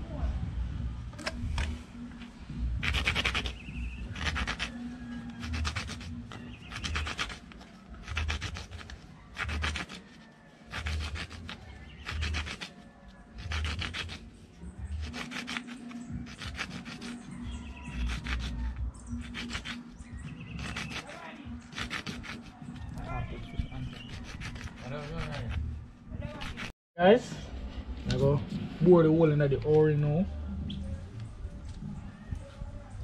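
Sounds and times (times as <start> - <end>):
plastic disc scraping on concrete: 1.2 - 26.7.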